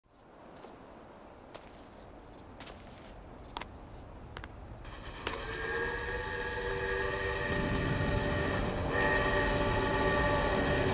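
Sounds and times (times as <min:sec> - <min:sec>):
crickets chirring: 0:00.1 - 0:08.6
sharp footsteps: 0:01.4 - 0:05.5
distant train whistle: 0:04.9 - 0:10.9.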